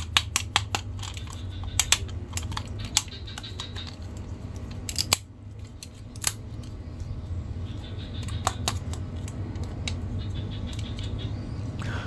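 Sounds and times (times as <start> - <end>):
plastic toy joints clicking: 0.0 - 6.8
low hum: 0.0 - 12.0.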